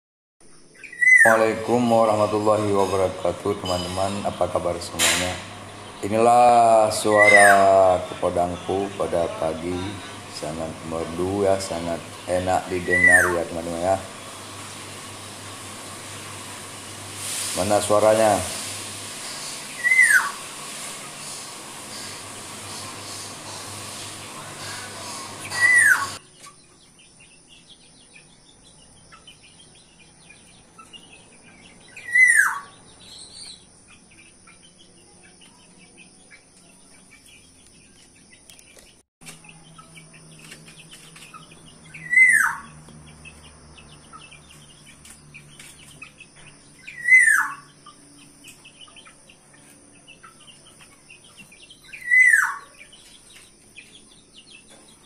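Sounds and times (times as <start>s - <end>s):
faint bird chirping: 0.4s - 15.3s, 21.9s - 55.0s
bird whistled call: 0.8s - 1.4s, 7.0s - 7.8s, 12.8s - 13.4s, 19.3s - 20.5s, 24.6s - 26.2s, 31.9s - 33.5s, 41.9s - 42.7s, 46.8s - 47.7s, 51.9s - 52.8s.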